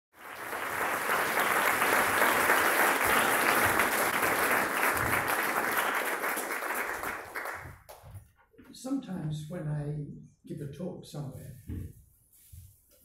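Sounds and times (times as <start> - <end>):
audience applauding: 0.1 - 8.1.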